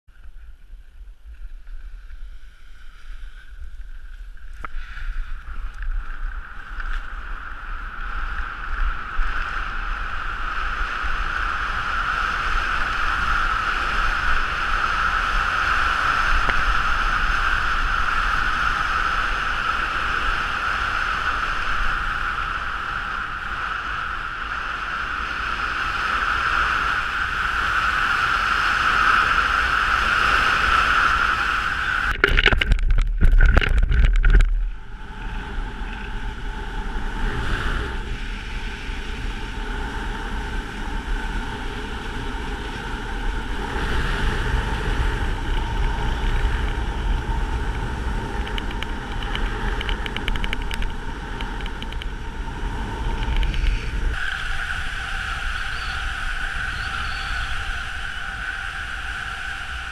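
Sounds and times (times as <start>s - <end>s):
wind buffeting microphone: 0.2s - 59.9s
skis hissing over snow: 52.2s - 59.9s.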